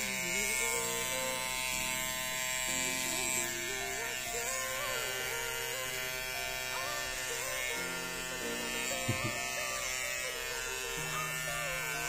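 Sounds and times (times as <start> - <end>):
electric hair clipper buzzing: 0.0 - 12.0
brief knock: 9.0 - 9.4.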